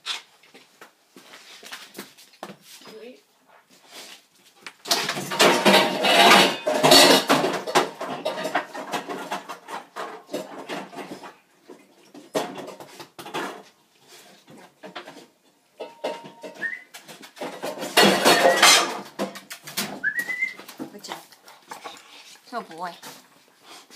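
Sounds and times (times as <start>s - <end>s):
dog bowls clattering: 4.8s - 13.7s, 14.6s - 23.2s.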